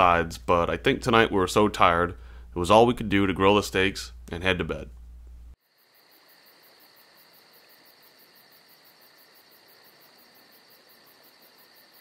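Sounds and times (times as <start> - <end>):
crickets trilling: 5.6 - 12.0.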